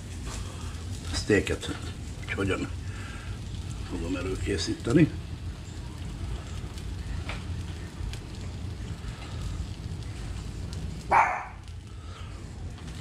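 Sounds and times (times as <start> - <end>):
bread frying crackling: 0.0 - 13.0
steady low noise: 0.0 - 13.0.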